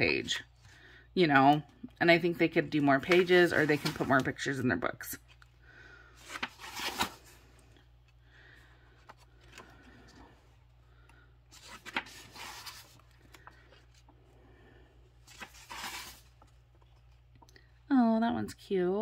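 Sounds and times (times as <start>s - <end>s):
book pages turning: 2.6s - 4.6s, 5.2s - 5.6s, 6.2s - 8.2s, 8.9s - 14.3s, 15.2s - 17.5s.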